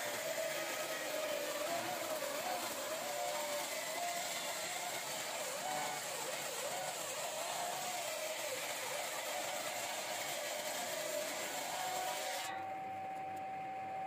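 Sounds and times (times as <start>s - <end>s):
table saw cutting wood: 0.0s - 12.6s.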